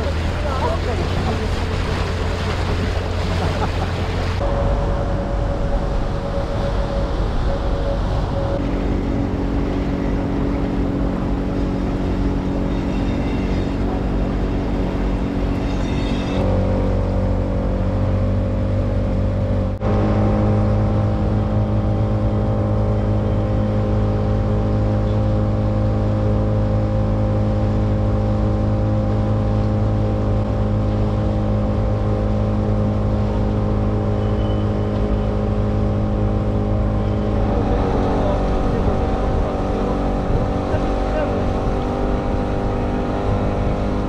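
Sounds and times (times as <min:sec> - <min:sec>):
engine droning: 0:00.0 - 0:44.0.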